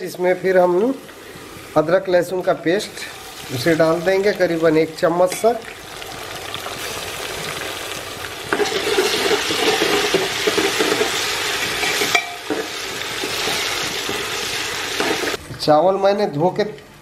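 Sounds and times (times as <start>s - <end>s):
onions sizzling in hot oil: 0.0s - 15.4s
metal ladle stirring and scraping: 8.5s - 14.3s.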